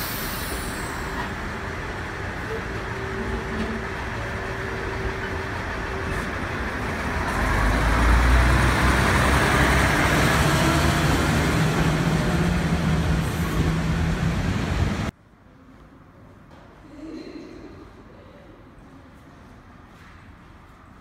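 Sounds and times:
diesel railcar passing: 0:00.0 - 0:15.1.

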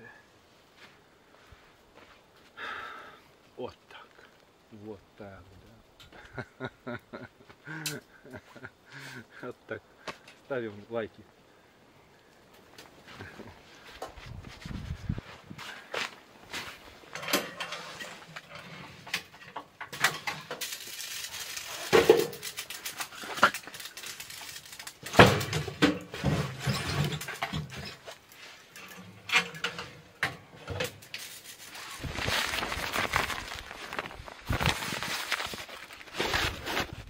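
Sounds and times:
handling knocks and scrapes: 0:13.0 - 0:37.0
log loaded into metal stove: 0:16.5 - 0:36.9
tent fabric rustling: 0:31.2 - 0:37.0.

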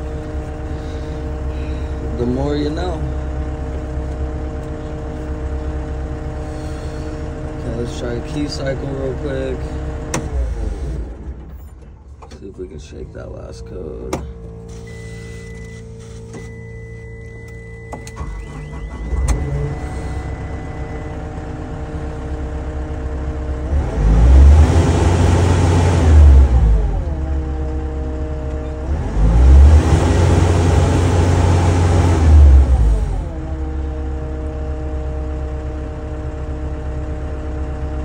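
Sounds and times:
diesel engine idling and revving: 0:00.0 - 0:38.0.

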